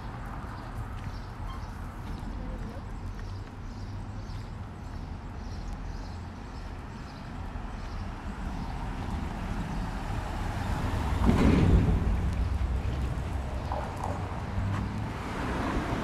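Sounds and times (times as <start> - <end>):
low traffic rumble: 0.0 - 16.0
vehicle passing: 8.1 - 16.0.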